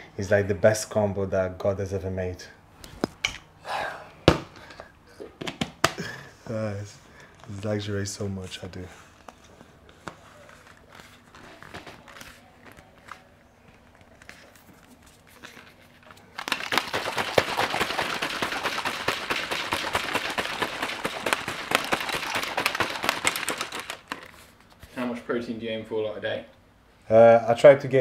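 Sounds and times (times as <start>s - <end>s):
shaker bottle rattling: 15.0s - 24.5s.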